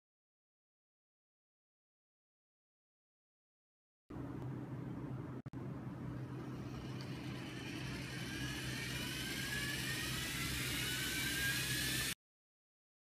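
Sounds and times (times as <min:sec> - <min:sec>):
electric motors whining: 0:06.3 - 0:12.2.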